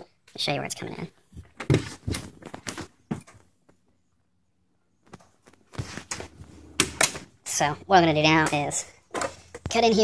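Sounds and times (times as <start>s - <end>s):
footsteps: 5.1s - 7.3s.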